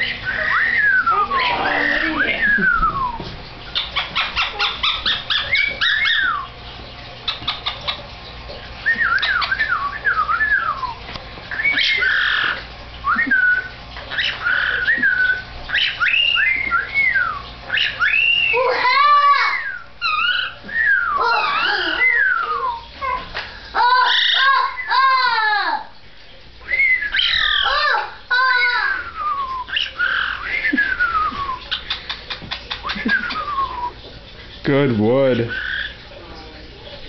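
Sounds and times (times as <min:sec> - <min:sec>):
parrot harsh call: 0:00.0 - 0:02.6, 0:11.5 - 0:12.6, 0:13.6 - 0:23.2, 0:23.8 - 0:25.8, 0:26.8 - 0:30.5, 0:35.5 - 0:36.0.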